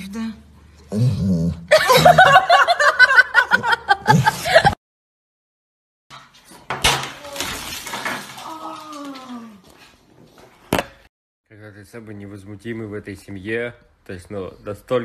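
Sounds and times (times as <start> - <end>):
person laughing: 1.7 - 4.8.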